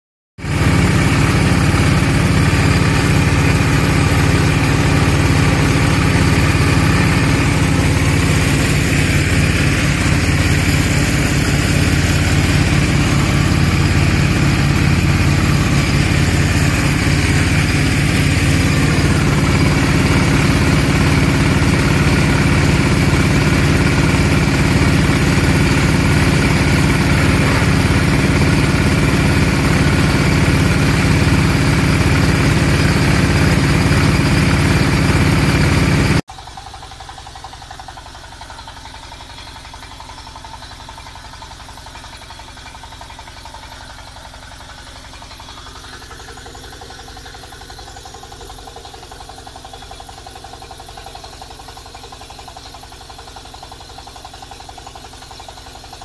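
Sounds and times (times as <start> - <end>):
drilling rig engine idling: 0.4 - 56.0.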